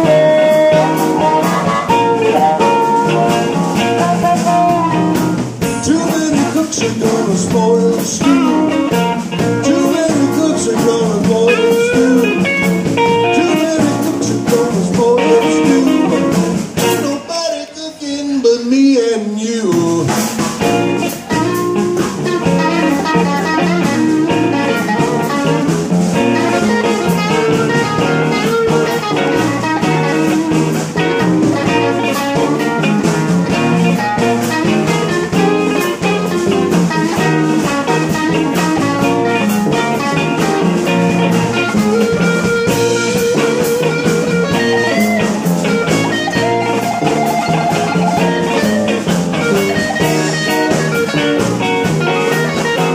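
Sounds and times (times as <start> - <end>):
drum kit: 0.0 - 17.4, 19.6 - 52.9
electric guitar: 0.0 - 52.9
upright bass: 0.0 - 52.9.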